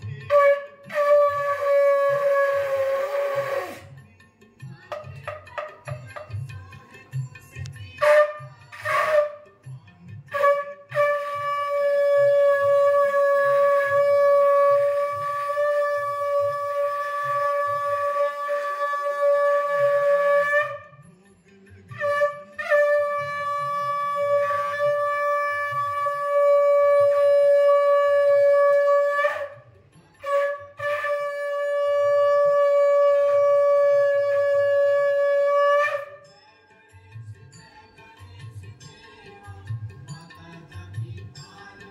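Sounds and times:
conch shell blasts: 0.1s - 3.9s, 8.0s - 9.5s, 10.3s - 21.0s, 21.9s - 29.6s, 30.2s - 36.3s.

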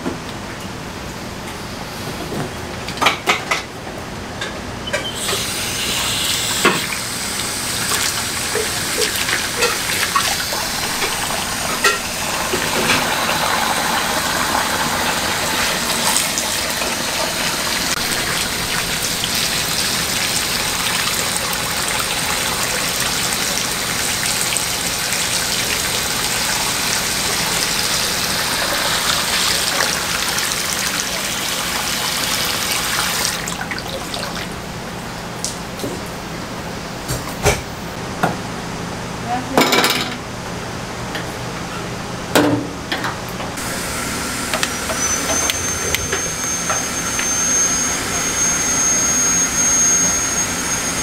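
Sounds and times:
water gushing from hose: 5.2s - 34.6s, 43.6s - 51.0s.

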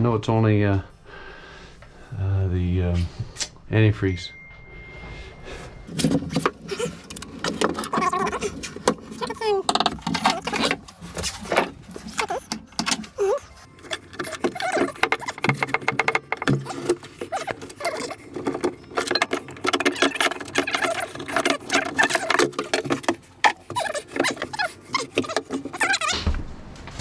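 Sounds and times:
pipe fittings clicking and knocking: 5.9s - 26.1s.

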